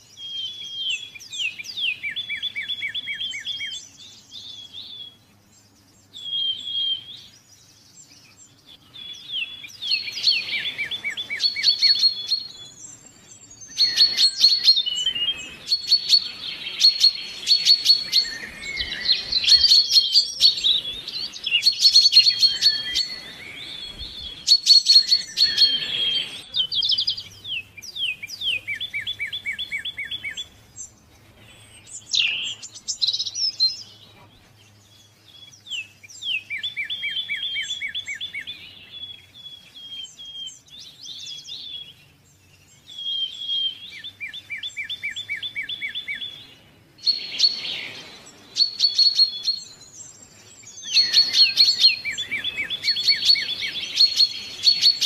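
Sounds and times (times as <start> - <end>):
songbirds chirping and trilling: 0.0 - 55.0.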